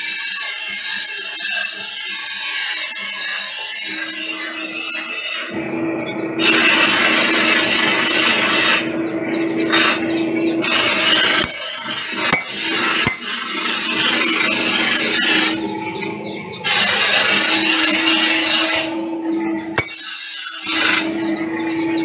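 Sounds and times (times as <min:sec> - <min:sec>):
grinding wheel scraping steel: 0:00.0 - 0:22.0
grinder motor hum: 0:05.5 - 0:19.9.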